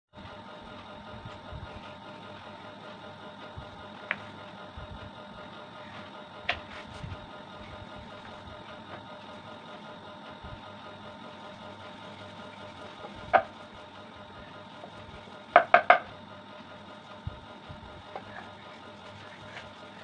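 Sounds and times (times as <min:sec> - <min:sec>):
faint steady hum: 0:00.2 - 0:20.0
rolling pin knocking on wooden board: 0:12.9 - 0:13.6, 0:15.5 - 0:16.2.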